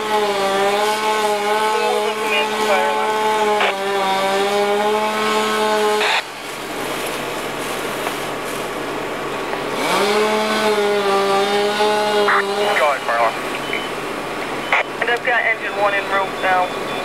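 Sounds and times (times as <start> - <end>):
small engine revving high: 9.7 - 12.9.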